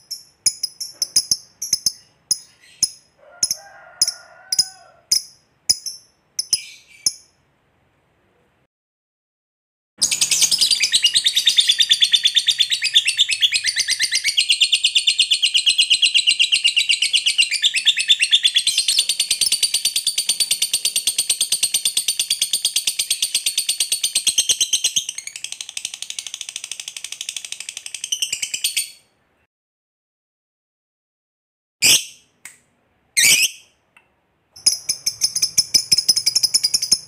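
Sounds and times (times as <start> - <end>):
lovebird chattering trill: 0.0 - 7.3, 10.0 - 25.4, 34.6 - 37.0.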